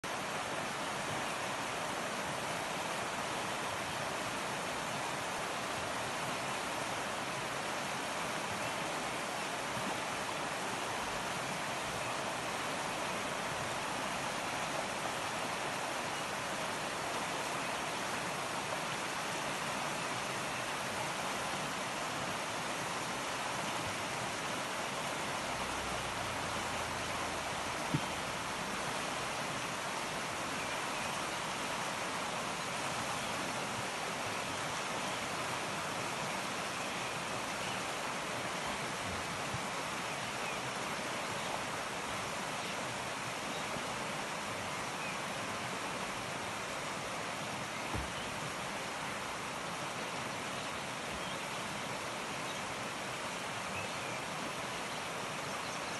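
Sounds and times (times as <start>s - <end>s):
river rushing over stones: 0.0s - 55.9s.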